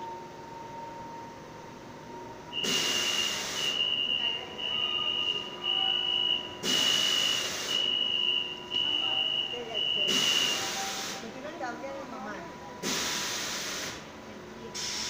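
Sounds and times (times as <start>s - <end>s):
high steady tone: 0.0s - 11.0s
air hiss bursts: 2.6s - 4.0s, 6.6s - 8.1s, 10.0s - 11.3s, 12.8s - 14.1s, 14.8s - 15.0s.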